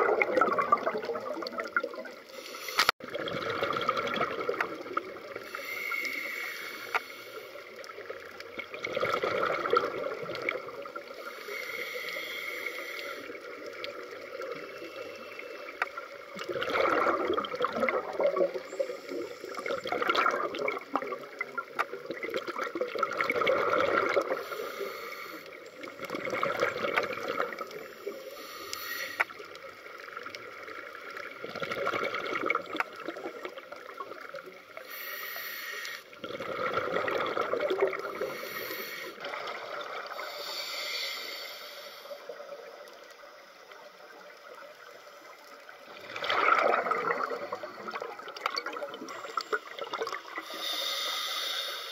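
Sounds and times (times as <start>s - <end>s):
bubbles gurgling underwater: 0.0s - 2.3s, 3.0s - 5.5s, 7.8s - 11.2s, 13.3s - 24.5s, 25.8s - 28.0s, 29.3s - 34.7s, 36.1s - 38.4s, 39.2s - 40.3s, 45.6s - 50.5s
breathing through scuba regulator: 2.3s - 3.0s, 5.4s - 7.9s, 11.0s - 13.6s, 23.7s - 25.7s, 26.8s - 29.4s, 34.8s - 37.0s, 37.9s - 42.4s, 48.9s - 51.9s.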